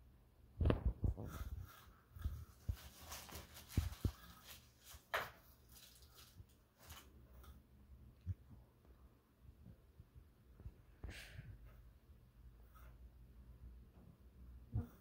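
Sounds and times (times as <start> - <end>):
packing paper crinkling: 2.4 - 7.2.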